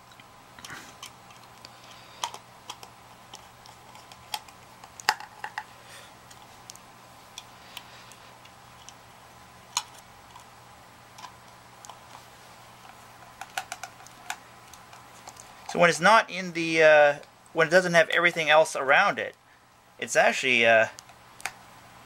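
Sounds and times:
faint steady hum: 0:00.0 - 0:22.0
plastic parts clicking and tapping: 0:00.1 - 0:05.7, 0:12.8 - 0:15.5.

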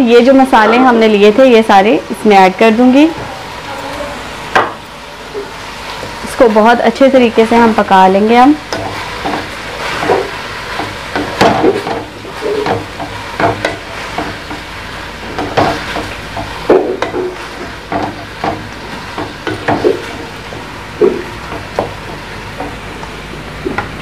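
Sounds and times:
oil sizzling: 0:00.0 - 0:24.0
wooden spatula scraping a wok: 0:08.6 - 0:22.9.

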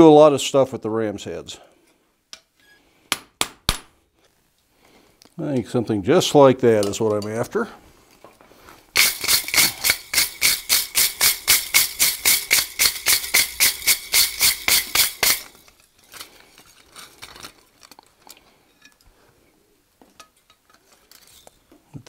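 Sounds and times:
wire brush scrubbing steel: 0:09.0 - 0:15.7
faint ticks and scrapes: 0:15.6 - 0:19.4, 0:20.0 - 0:21.8.

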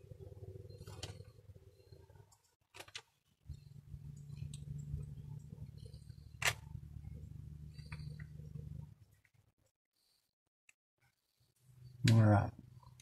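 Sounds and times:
steady low hum: 0:00.0 - 0:02.5, 0:03.3 - 0:09.2
plastic parts clicking: 0:02.3 - 0:03.2.

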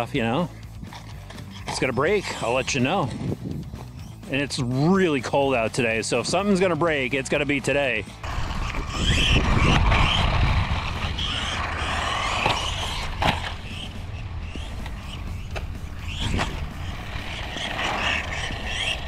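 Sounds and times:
electric motor and gears whining: 0:00.0 - 0:19.0
sharp knocks from landings: 0:08.4 - 0:19.0.

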